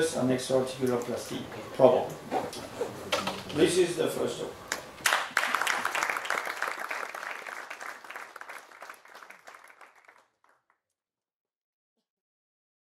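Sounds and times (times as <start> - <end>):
audience applauding: 4.7 - 10.7.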